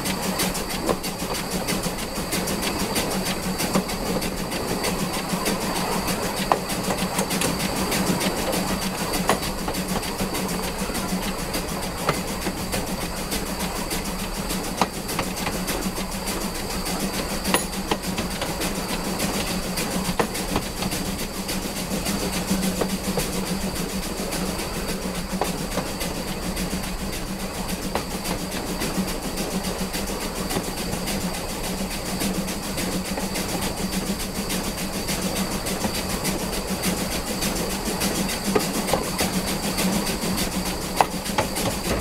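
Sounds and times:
train wheels rolling on rails: 0:00.0 - 0:42.0
wheels clicking over rail joints: 0:00.0 - 0:42.0.

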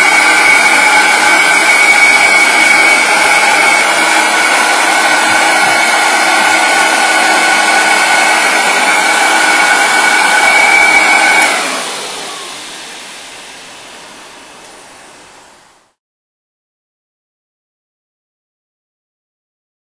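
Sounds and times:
air sled blower whining: 0:00.0 - 0:15.3.

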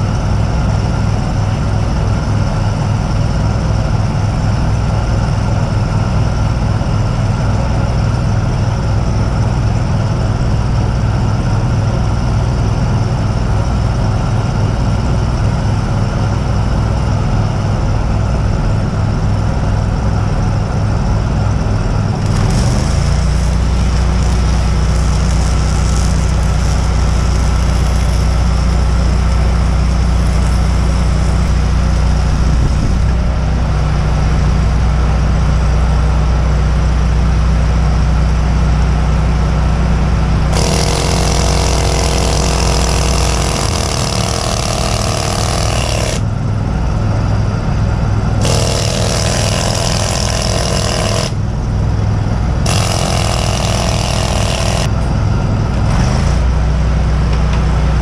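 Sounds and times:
welder engine running: 0:00.0 - 0:58.0
crackling welding arc hiss: 0:22.2 - 0:32.7.

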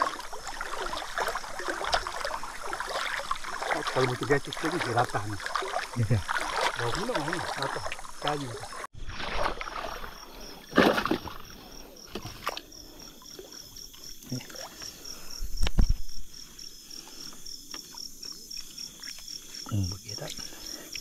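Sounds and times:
river water splashing: 0:00.0 - 0:15.2.

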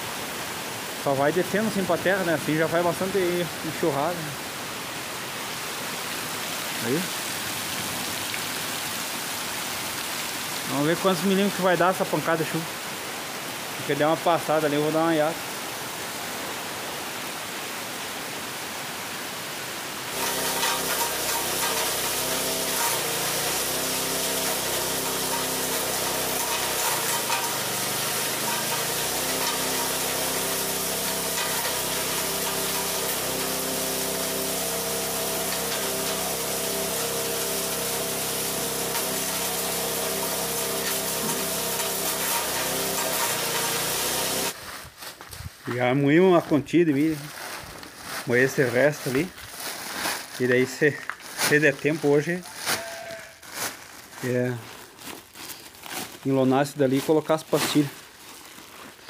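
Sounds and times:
heavy rain: 0:00.0 - 0:44.6
grinding mill humming: 0:20.1 - 0:44.6
corn being poured: 0:20.1 - 0:44.7, 0:45.7 - 0:59.0.

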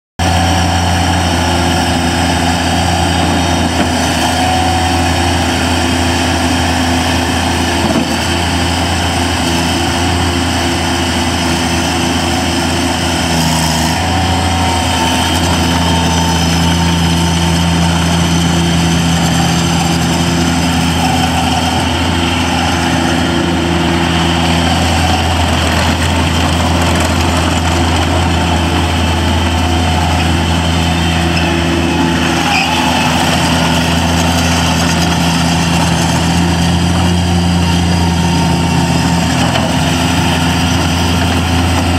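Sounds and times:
diesel engine running: 0:00.2 - 0:41.9.

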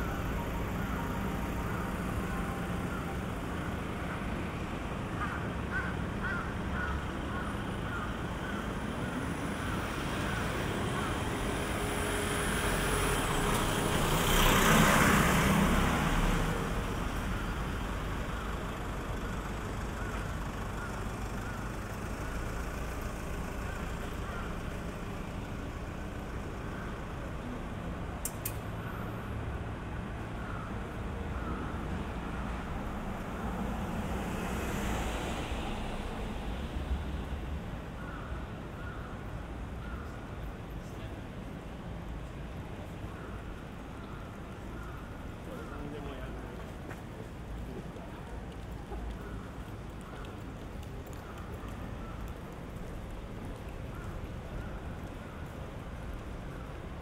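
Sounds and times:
city street traffic: 0:00.0 - 0:57.0
vehicle passing close by: 0:11.7 - 0:17.0.

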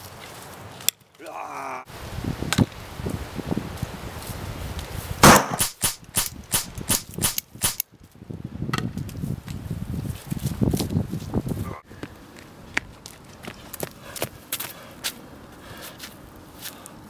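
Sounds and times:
footsteps in dry leaves: 0:00.0 - 0:00.9
pistol shots: 0:05.2 - 0:07.8.

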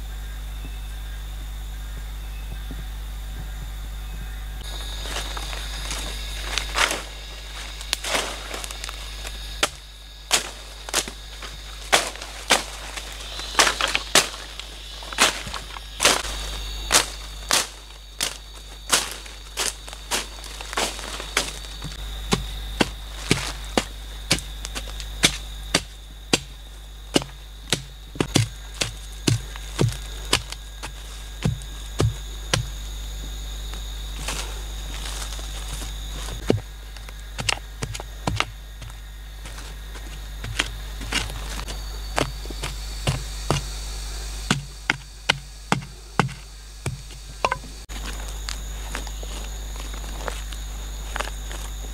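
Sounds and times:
faint steady high tone: 0:00.0 - 0:10.0
digging tool chopping into soil: 0:27.2 - 0:30.6.

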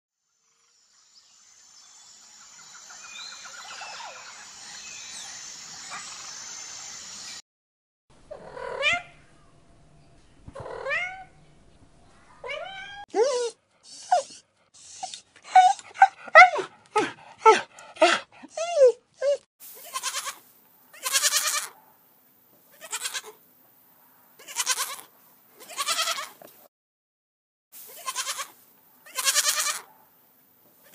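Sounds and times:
bird chirps: 0:00.5 - 0:07.4
steady high hiss: 0:00.8 - 0:07.4, 0:19.6 - 0:24.0, 0:27.8 - 0:30.9
goat kids bleating: 0:19.8 - 0:21.7, 0:22.7 - 0:23.4, 0:24.4 - 0:26.4, 0:27.9 - 0:29.9.

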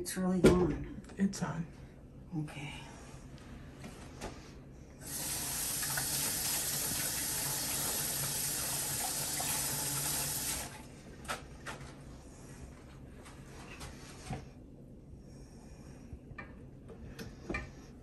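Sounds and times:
faucet running into sink: 0:05.0 - 0:10.8.

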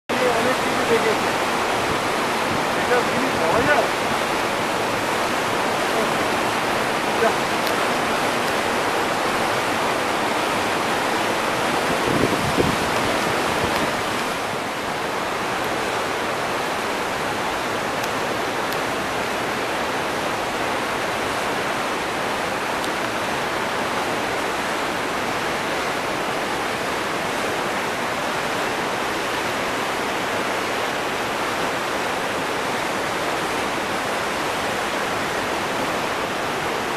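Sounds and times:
waterfall rushing onto rocks: 0:00.1 - 0:36.9.

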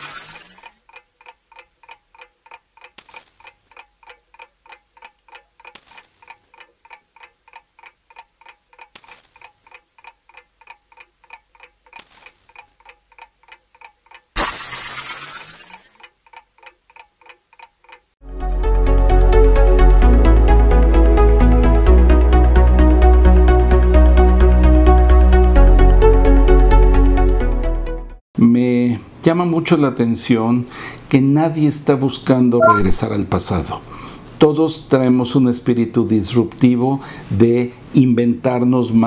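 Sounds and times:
short bright chimes: 0:32.6 - 0:33.0.

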